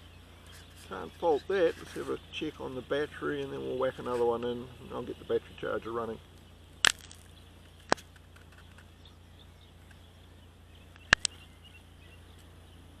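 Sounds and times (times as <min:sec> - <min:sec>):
sharp clicks: 0:06.4 - 0:08.9, 0:10.9 - 0:11.4.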